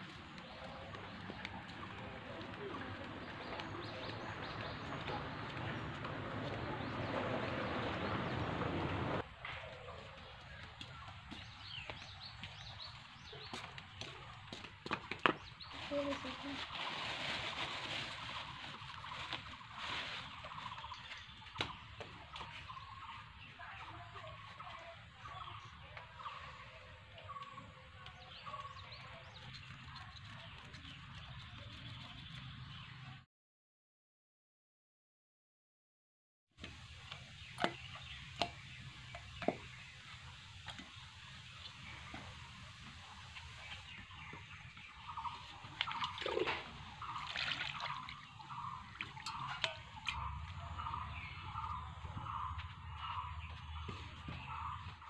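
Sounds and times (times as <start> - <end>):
water splashing and trickling: 10.2 - 26.7, 36.8 - 55.0.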